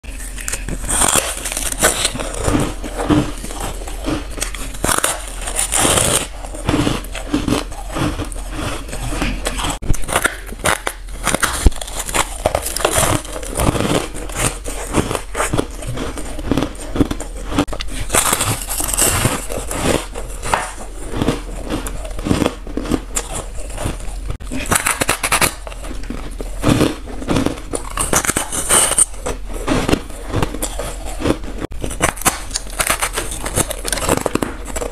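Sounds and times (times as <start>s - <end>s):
person crunching ice: 0.0s - 34.9s.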